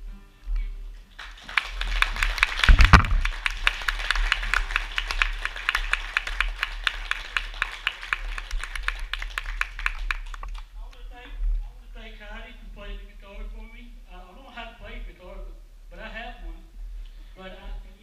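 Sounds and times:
audience applauding: 1.2s - 10.7s
thumps on microphone: 2.7s - 3.3s.

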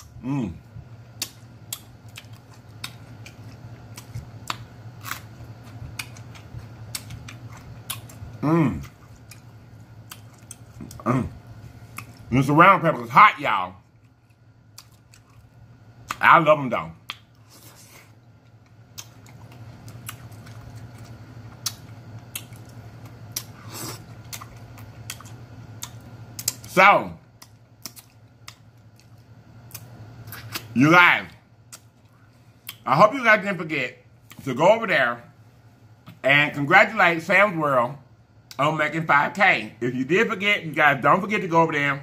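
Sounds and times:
low steady hum: 0.0s - 42.0s
chewing clicks: 1.2s - 11.0s, 14.0s - 16.2s, 18.4s - 23.5s, 24.2s - 26.7s, 27.4s - 30.7s
mouth-open chewing smacks: 18.9s - 26.7s.

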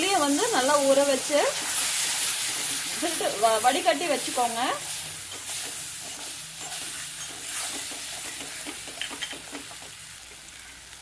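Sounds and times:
paste sizzling in oil: 0.0s - 11.0s
steel spatula scraping pan: 5.3s - 8.6s.

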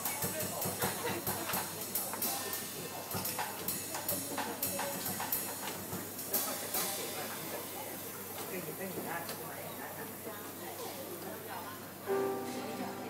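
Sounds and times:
cymbal and drum strikes: 0.0s - 7.4s, 12.1s - 13.0s
live band playing: 12.1s - 13.0s.

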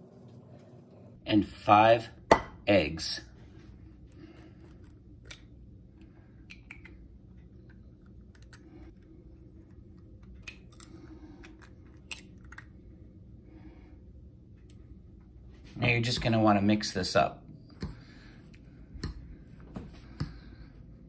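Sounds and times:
eggshells cracking: 10.2s - 12.7s.

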